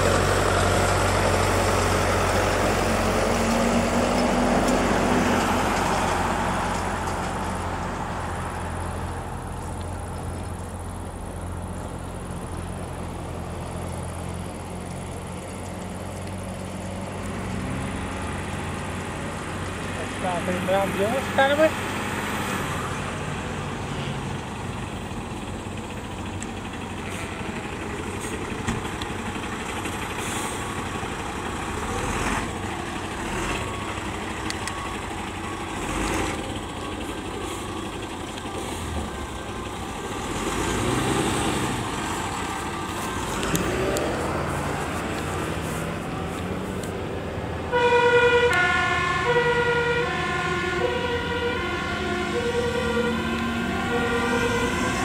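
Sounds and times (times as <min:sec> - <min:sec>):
diesel engines passing: 0:00.0 - 0:55.0
road and traffic noise: 0:00.0 - 0:55.0
two-tone siren: 0:47.7 - 0:55.0.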